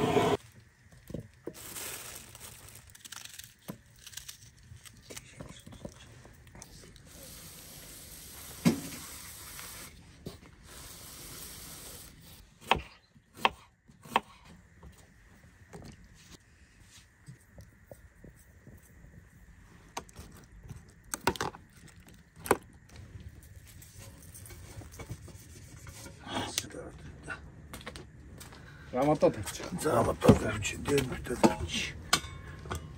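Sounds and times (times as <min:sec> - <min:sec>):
quiet handling and rubbing: 0:22.9 - 0:27.0.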